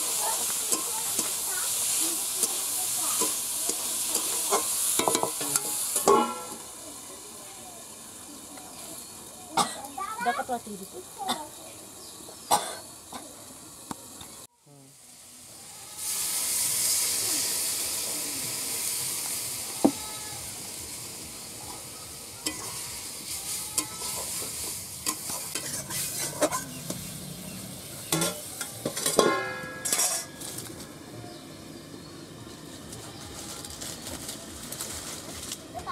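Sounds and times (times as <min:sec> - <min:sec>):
food sizzling in hot oil: 0:00.0 - 0:35.9
metal spatula clinking on pan: 0:29.0 - 0:30.3.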